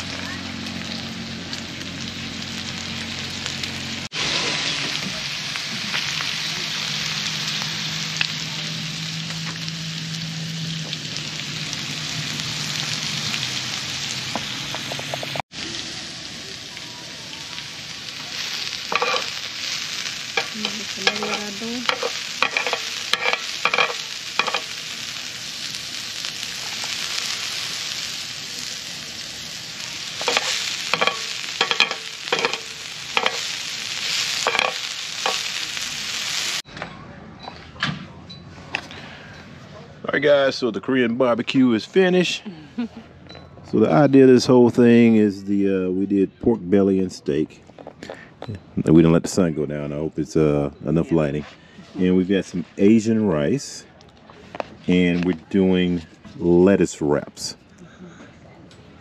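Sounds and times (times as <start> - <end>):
meat sizzling on a griddle: 0.0 - 36.6
utensil scraping griddle: 18.2 - 25.2, 29.8 - 36.6.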